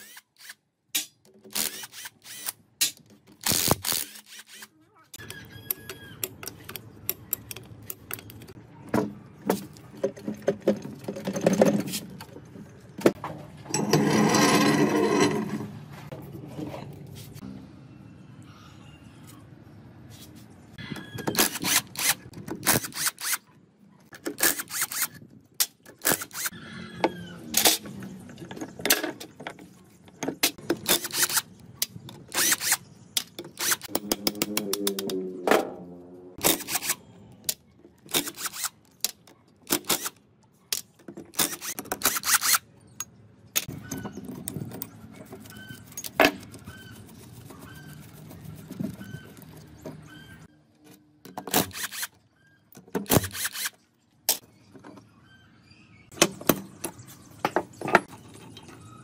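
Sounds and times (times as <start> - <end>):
ringing metal scrape: 13.7 - 15.9.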